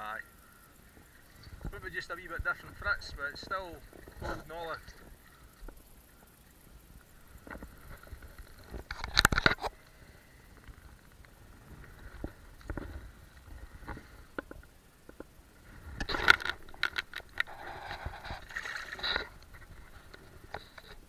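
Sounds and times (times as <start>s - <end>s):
water sloshing: 15.6s - 20.8s.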